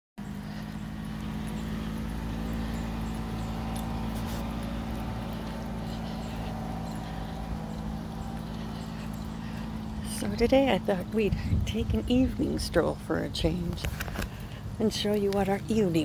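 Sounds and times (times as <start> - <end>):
dog claws ticking on pavement: 0.2 - 10.0
low mechanical hum: 0.2 - 16.0.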